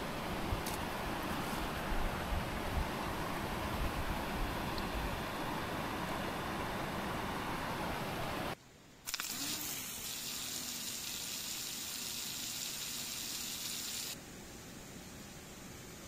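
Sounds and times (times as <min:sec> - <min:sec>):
faint generator hum: 0:00.0 - 0:16.0
water jet hissing gush: 0:09.1 - 0:14.2.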